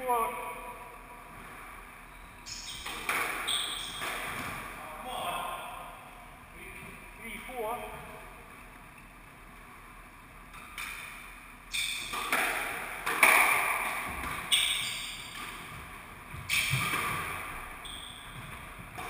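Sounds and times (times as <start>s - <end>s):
squash ball cracks echoing: 12.0s - 14.5s.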